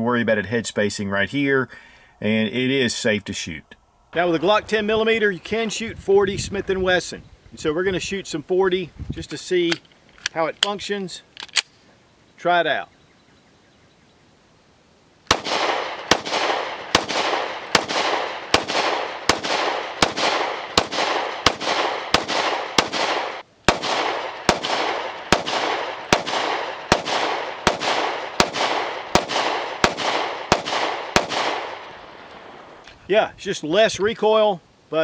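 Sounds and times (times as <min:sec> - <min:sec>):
pistol shots with ringing echo: 0:15.3 - 0:32.8.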